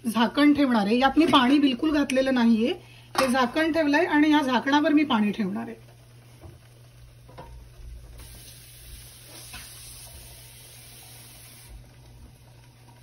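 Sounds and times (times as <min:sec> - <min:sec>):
chicken sizzling in a covered pan: 0:07.5 - 0:13.0.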